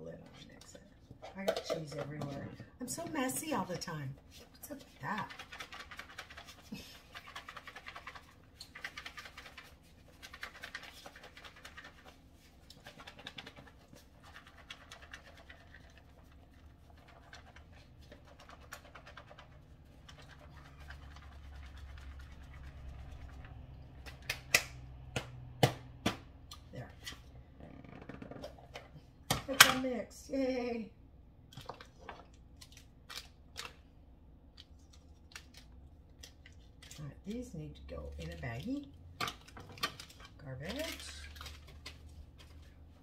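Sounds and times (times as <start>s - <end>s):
cheese shaken in plastic container: 4.4s - 23.5s.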